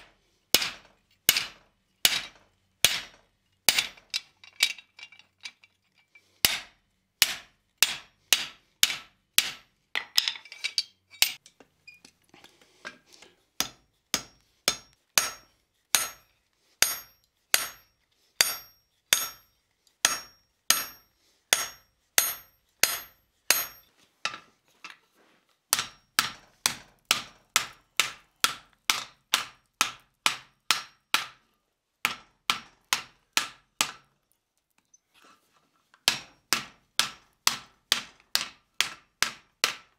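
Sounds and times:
hammer striking hot steel on anvil: 0.6 - 4.0, 6.4 - 9.7, 13.6 - 24.4, 25.7 - 31.4, 32.0 - 34.1, 36.1 - 39.8.

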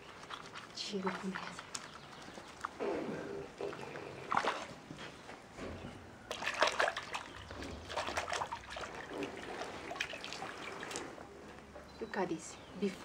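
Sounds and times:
hands sloshing wool in water: 0.0 - 2.8, 3.7 - 4.8, 6.3 - 11.2.

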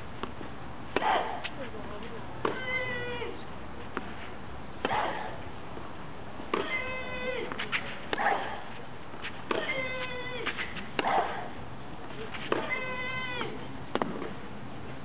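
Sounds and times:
racket hitting ball: 0.2 - 1.7, 2.4 - 3.2, 4.8 - 5.4, 6.5 - 14.4
woman shrieking: 6.6 - 7.5, 9.6 - 10.5.

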